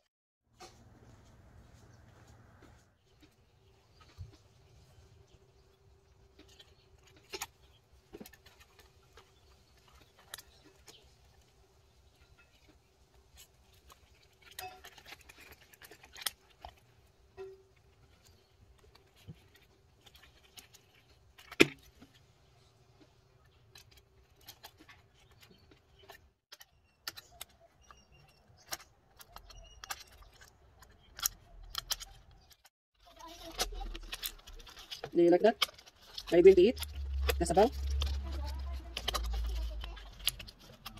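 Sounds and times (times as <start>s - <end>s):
puzzle pieces clicking and scraping: 33.3s - 40.9s.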